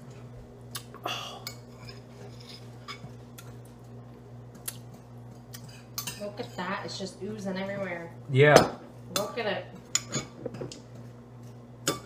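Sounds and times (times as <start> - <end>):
metal spoon scraping a bowl: 1.5 - 3.1.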